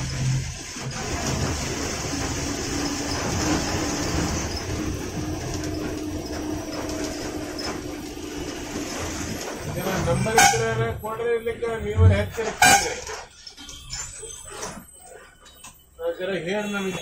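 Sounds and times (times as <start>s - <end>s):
diesel bus engine: 0.0s - 13.6s
road noise: 0.0s - 13.7s
bus body rattling: 0.0s - 15.3s.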